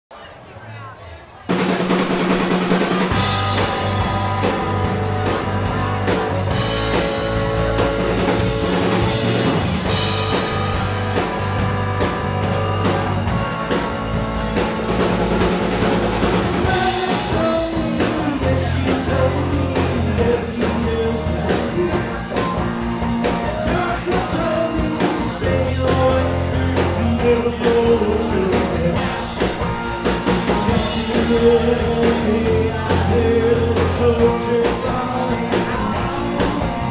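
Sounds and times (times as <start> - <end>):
bass guitar: 1.5 - 36.9
drum kit: 1.5 - 36.9
electric guitar: 1.5 - 36.9
person singing lead vocals: 16.3 - 36.9.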